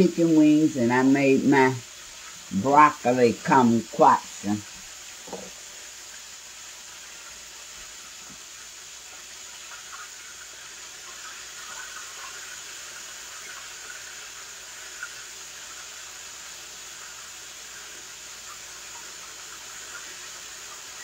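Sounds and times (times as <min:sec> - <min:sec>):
chicken frying in hot oil: 0:00.0 - 0:21.0.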